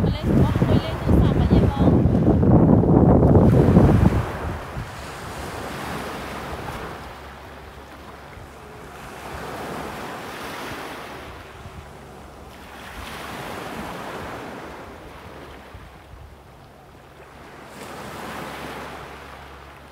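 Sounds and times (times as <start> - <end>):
waves breaking on pebbly shore: 3.4 - 15.9.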